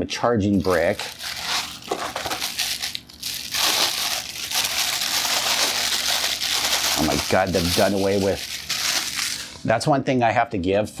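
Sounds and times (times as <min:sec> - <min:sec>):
cardboard rustling: 0:00.6 - 0:03.0, 0:03.6 - 0:09.4
plastic bag crinkling: 0:00.6 - 0:09.6.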